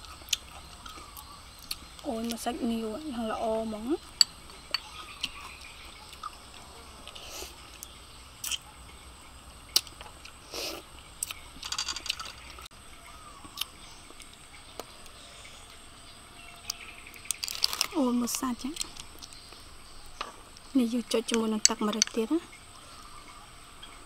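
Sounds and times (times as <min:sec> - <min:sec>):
wet chewing sounds: 0:00.0 - 0:02.4, 0:04.0 - 0:08.7.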